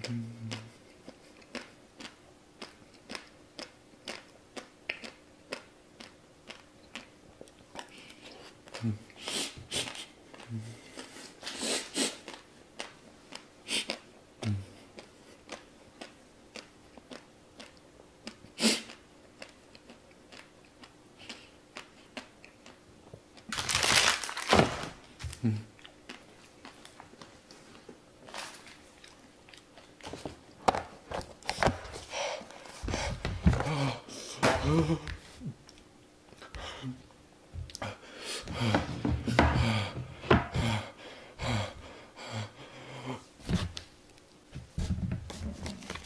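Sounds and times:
man humming low: 0:00.0 - 0:00.8, 0:08.7 - 0:09.2, 0:10.4 - 0:10.9, 0:14.4 - 0:14.8, 0:25.3 - 0:25.8, 0:32.9 - 0:35.6
lip smacks and mouth clicks: 0:00.5 - 0:10.5, 0:12.2 - 0:14.1, 0:15.0 - 0:23.5
man blowing air out: 0:11.5 - 0:12.2, 0:18.6 - 0:18.9.

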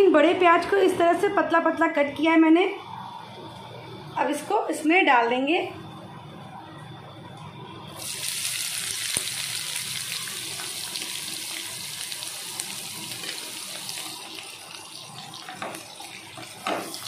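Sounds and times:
onions sizzling in oil: 0:07.9 - 0:17.0.

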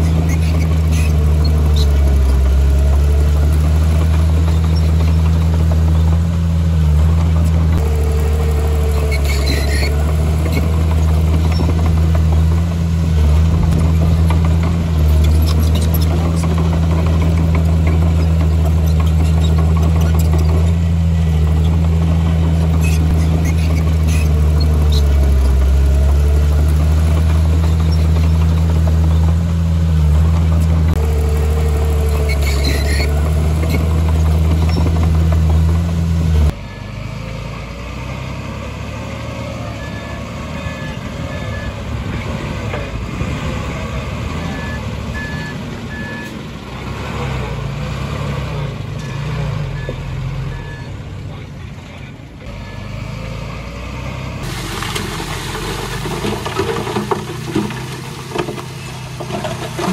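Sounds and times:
heavy diesel machinery engine: 0:00.0 - 0:59.9
reversing alarm beeping: 0:39.7 - 0:41.8.

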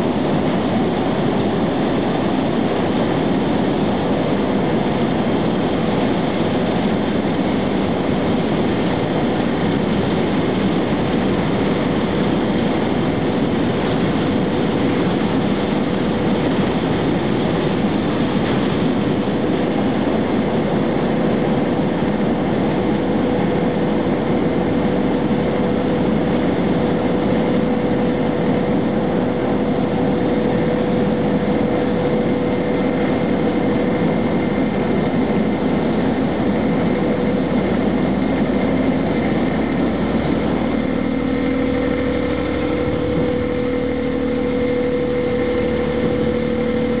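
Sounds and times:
constant hum: 0:00.0 - 0:47.0
freight train rumbling on bridge: 0:21.2 - 0:47.0
steady tones: 0:38.1 - 0:47.0.

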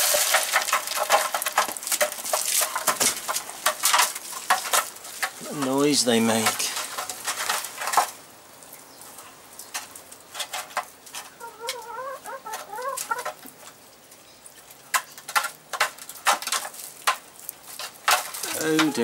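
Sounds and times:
hens' beaks tapping trough: 0:09.6 - 0:13.8, 0:14.8 - 0:19.0
hen warbling call: 0:11.4 - 0:13.3.

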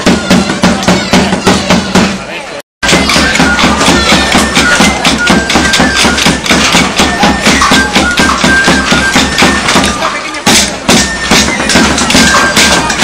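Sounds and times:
steady drum beat: 0:00.0 - 0:13.0
high piping melody: 0:02.8 - 0:13.0
wooden sticks clacking: 0:02.8 - 0:13.0.

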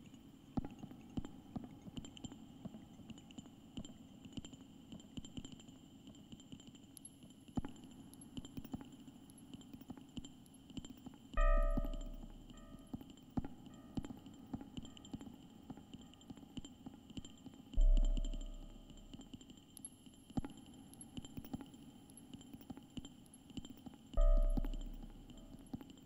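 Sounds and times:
loud low tone: 0:11.4 - 0:12.3, 0:17.8 - 0:18.8, 0:24.2 - 0:24.9
steady low hum: 0:11.4 - 0:12.9, 0:17.8 - 0:19.5, 0:24.2 - 0:25.8
faint high steady tones: 0:11.4 - 0:16.2, 0:17.8 - 0:21.2, 0:24.2 - 0:26.0
electronic clicks and crackles: 0:17.2 - 0:26.0.

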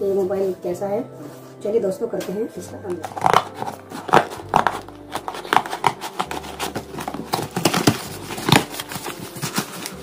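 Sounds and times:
cardboard box being opened: 0:03.0 - 0:10.0
packing paper rustling: 0:03.0 - 0:10.0.

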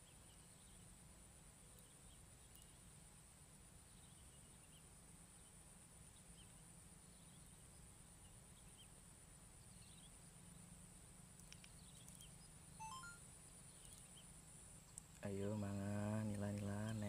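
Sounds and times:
faint bird chirps: 0:01.6 - 0:03.0, 0:11.4 - 0:17.0.

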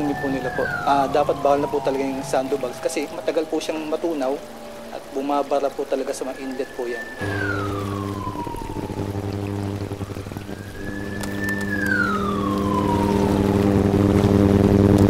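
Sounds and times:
siren-like wailing tone: 0:00.0 - 0:14.9
low droning chord: 0:07.2 - 0:15.0.

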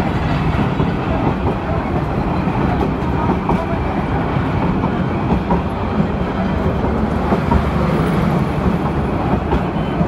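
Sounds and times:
train carriages rumbling and rattling: 0:00.0 - 0:10.0.

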